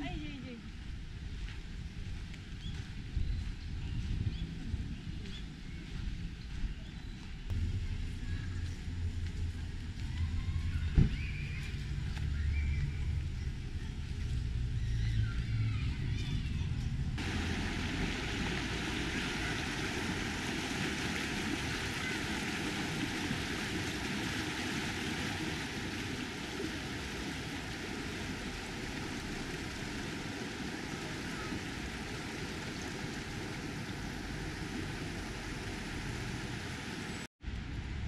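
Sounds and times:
stream water rushing: 0:17.2 - 0:37.3.

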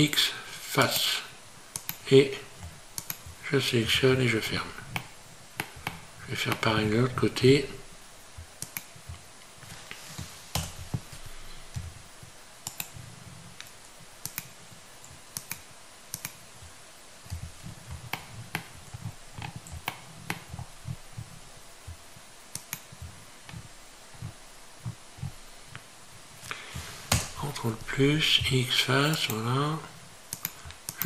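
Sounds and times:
mouse and keyboard clicking: 0:01.7 - 0:02.0, 0:03.0 - 0:03.2, 0:08.6 - 0:08.9, 0:12.6 - 0:13.0, 0:13.6 - 0:14.6, 0:15.3 - 0:16.4, 0:22.5 - 0:22.9, 0:30.3 - 0:31.0.

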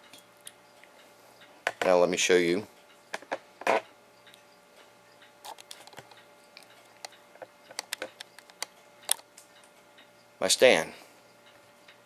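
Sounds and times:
light handling clicks and taps: 0:05.5 - 0:09.8.

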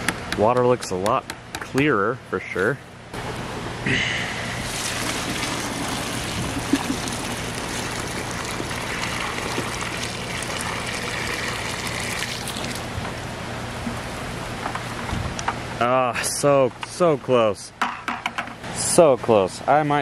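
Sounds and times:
water pouring into a hole: 0:04.6 - 0:13.0.

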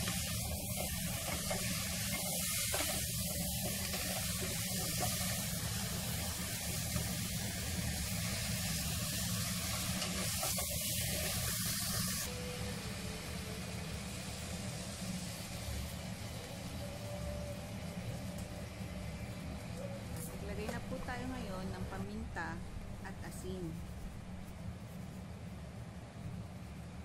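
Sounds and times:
food hissing in pot: 0:00.0 - 0:17.9
low steady hum: 0:12.3 - 0:27.0.

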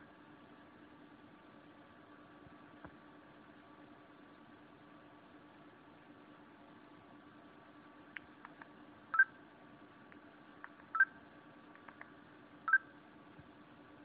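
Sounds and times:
faint clicks: 0:08.1 - 0:08.8, 0:11.7 - 0:12.2.

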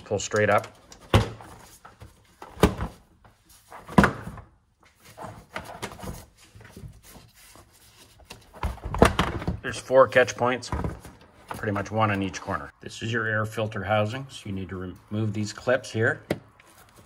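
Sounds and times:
sharp plastic thunks: 0:08.6 - 0:09.6.

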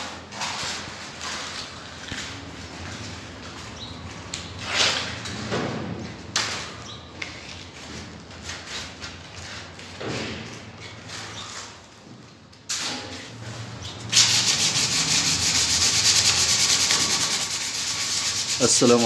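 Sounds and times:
sandpaper rustling: 0:14.1 - 0:19.0
sandpaper scraping swishes: 0:14.1 - 0:19.0.

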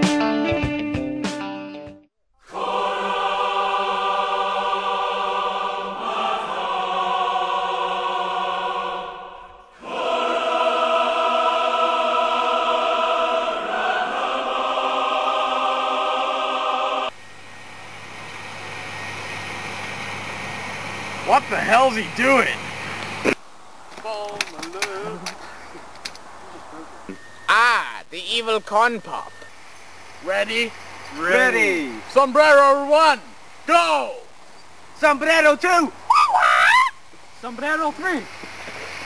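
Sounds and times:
choir-like sustained chords: 0:02.4 - 0:23.3
outdoor hiss: 0:02.4 - 0:39.0.

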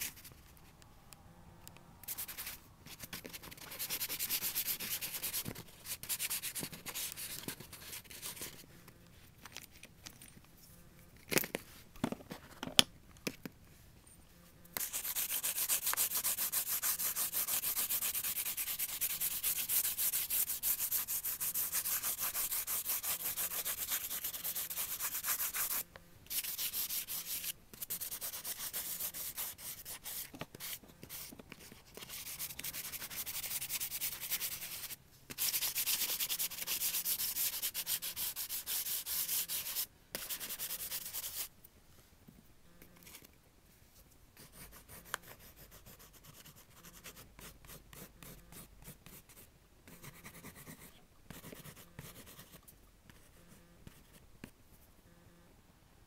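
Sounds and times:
pastel scratching on paper: 0:02.1 - 0:08.6, 0:14.8 - 0:41.5, 0:44.4 - 0:54.2.

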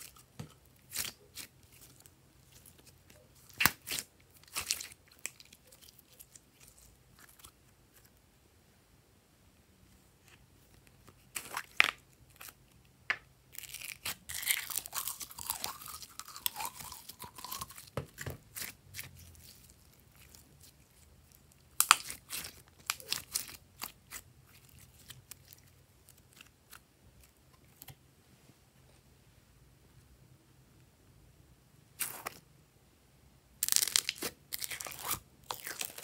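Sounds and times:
slime squelching and popping: 0:02.8 - 0:06.7, 0:21.7 - 0:25.5.

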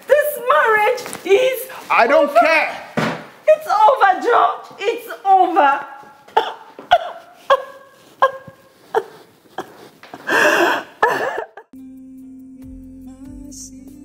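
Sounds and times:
woman sobbing and wailing: 0:06.3 - 0:11.7
music with low tone: 0:11.8 - 0:14.0.

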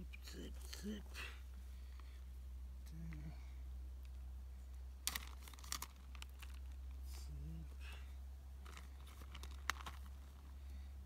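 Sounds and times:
plastic wrapping crinkling: 0:05.0 - 0:07.0, 0:08.6 - 0:10.6.

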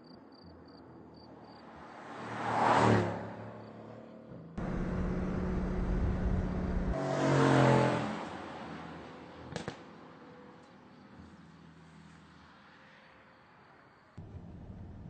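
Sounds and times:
car engine passing: 0:01.5 - 0:09.0.

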